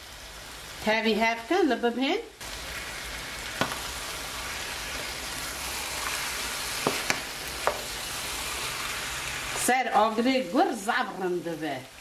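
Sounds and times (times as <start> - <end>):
food sizzling in a frying pan: 0.0 - 12.0
wooden spoon stirring: 3.6 - 8.0.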